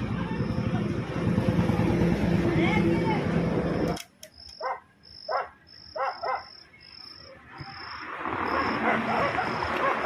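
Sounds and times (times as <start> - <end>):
insect chirping: 3.7 - 10.0.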